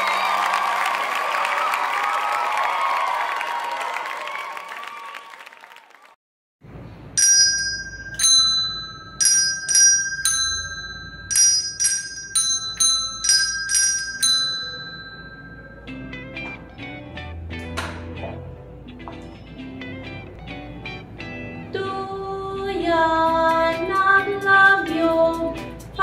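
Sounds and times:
crowd cheering: 0.0 - 6.2
handbells ringing: 7.2 - 16.5.

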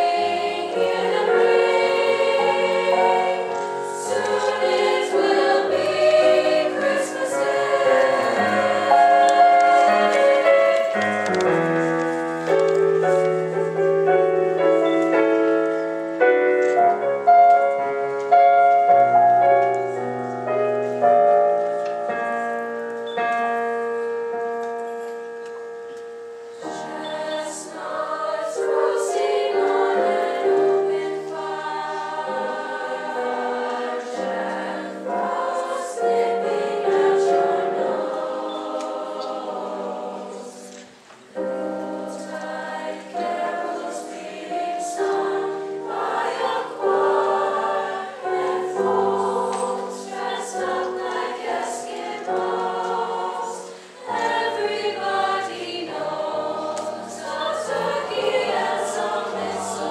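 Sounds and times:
choir singing in parts: 0.0 - 24.2, 26.4 - 59.9
piano playing: 0.0 - 59.9.

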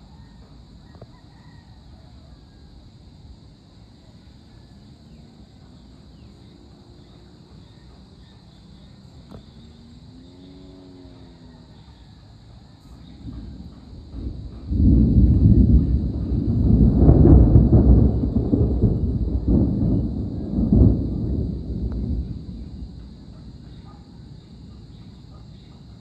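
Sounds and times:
low rumble and hiss: 0.0 - 26.0.

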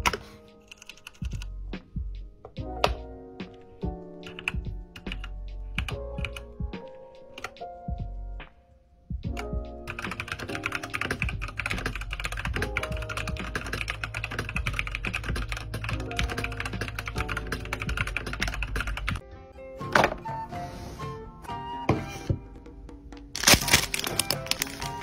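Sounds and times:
mechanical keyboard typing: 0.0 - 1.5, 4.2 - 6.5, 7.3 - 7.6, 9.4 - 19.2
background music: 0.0 - 25.0.

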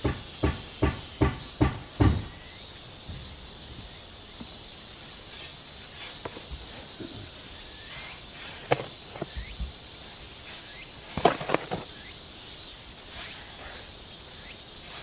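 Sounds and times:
shovel scraping in plastic tub: 10.4 - 11.9.

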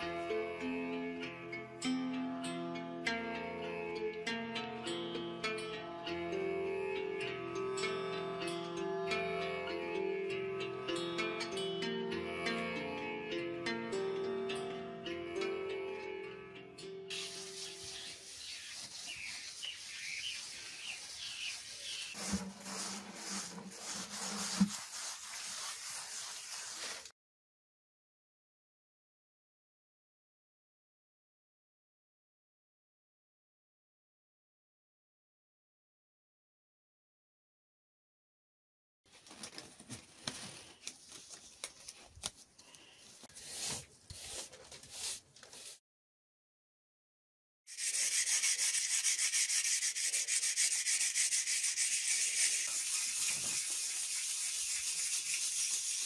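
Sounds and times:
birds chirping: 17.1 - 22.2
scouring pad rubbing plaster: 17.1 - 27.1, 43.2 - 45.8, 47.7 - 56.0
latex gloves crinkling and snapping: 39.2 - 43.0.

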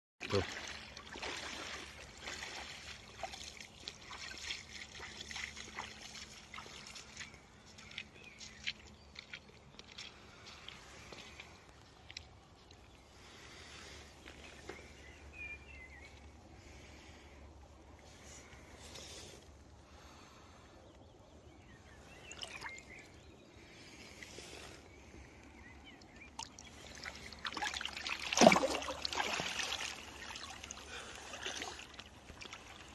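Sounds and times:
water splashes and drips: 0.2 - 13.5, 22.2 - 23.2, 24.0 - 32.9.

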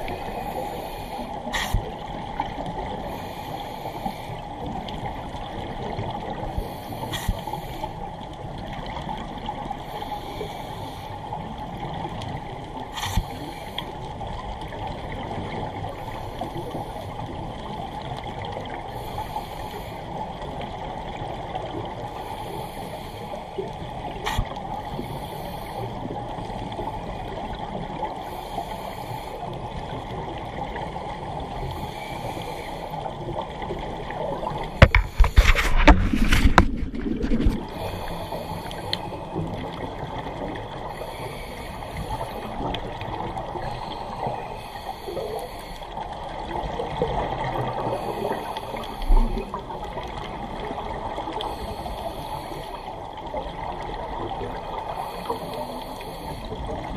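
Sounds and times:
scuba regulator breathing: 0.0 - 2.0, 2.9 - 4.7, 6.4 - 8.2, 9.8 - 11.4, 12.9 - 14.1, 18.9 - 20.2, 22.1 - 26.2, 28.1 - 29.6, 31.5 - 33.2, 34.4 - 46.1, 47.6 - 49.7, 51.3 - 53.1, 54.8 - 56.9
muffled underwater hiss: 0.0 - 56.9
exhaled bubbles: 33.4 - 41.4.

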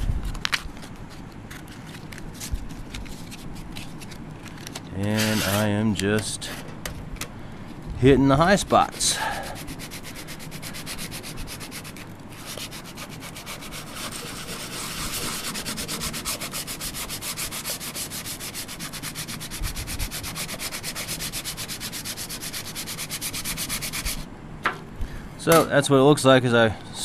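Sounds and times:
sandpaper rubbing on metal: 5.1 - 5.7, 8.6 - 24.3.

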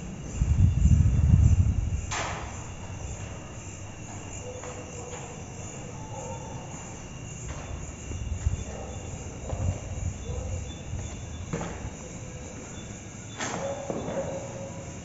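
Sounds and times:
faint high-pitched hum: 0.0 - 15.0
footsteps: 2.2 - 12.7.

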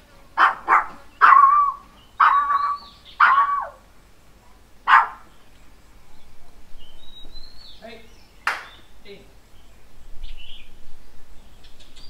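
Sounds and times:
dog barking: 0.4 - 3.8, 4.8 - 5.3.

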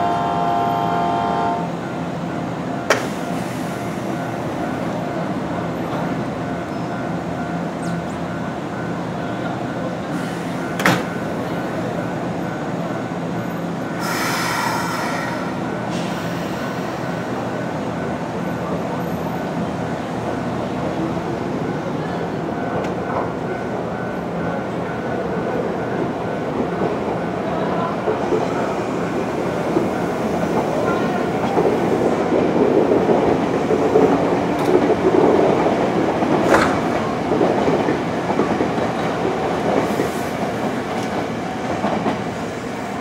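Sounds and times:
electric train equipment humming: 0.0 - 3.0
air hiss: 14.0 - 16.9.

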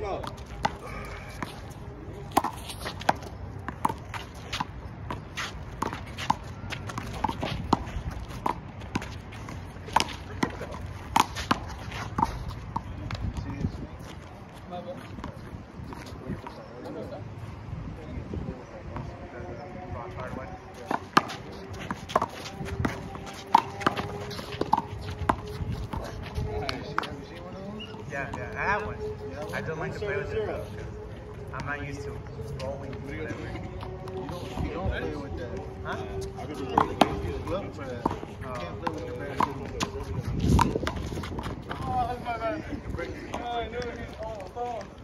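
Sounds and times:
shoes scuffing on concrete: 0.2 - 13.1, 20.8 - 29.6.

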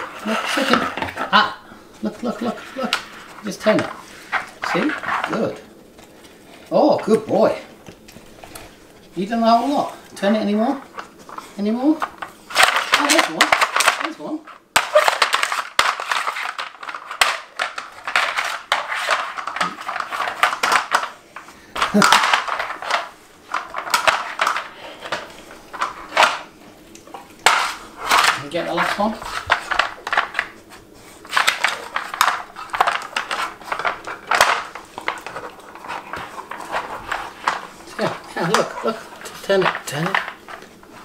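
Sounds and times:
plastic puzzle toy clattering on floor: 12.0 - 14.2, 14.8 - 26.5, 27.4 - 30.6, 31.3 - 40.7.

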